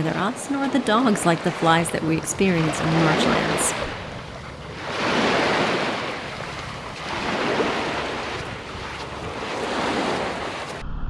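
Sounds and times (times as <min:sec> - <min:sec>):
small waves washing on beach: 0:00.0 - 0:10.8.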